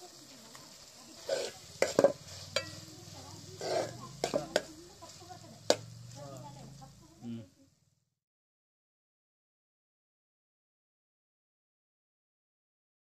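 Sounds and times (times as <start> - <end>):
faint sizzle: 0.0 - 8.2
spoon scraping through food: 0.8 - 6.2
spoon clinking against pot: 1.3 - 2.8.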